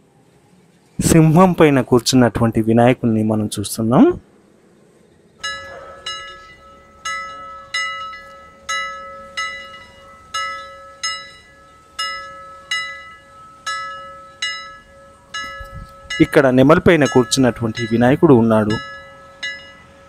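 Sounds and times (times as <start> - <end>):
metal bell ringing: 5.4 - 20.0.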